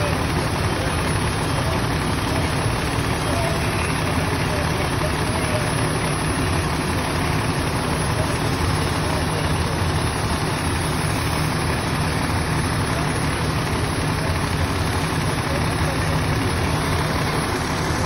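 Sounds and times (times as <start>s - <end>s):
diesel engine droning: 0.0s - 18.0s.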